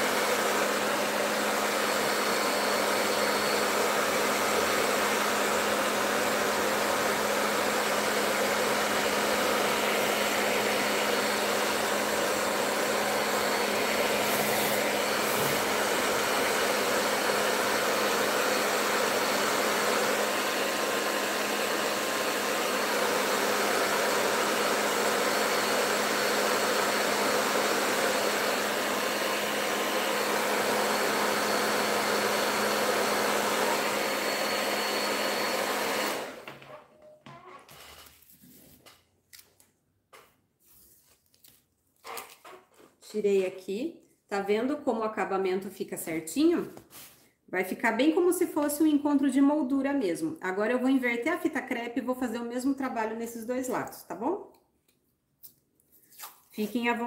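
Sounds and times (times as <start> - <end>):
hair dryer running: 0.0 - 36.7, 56.6 - 57.0.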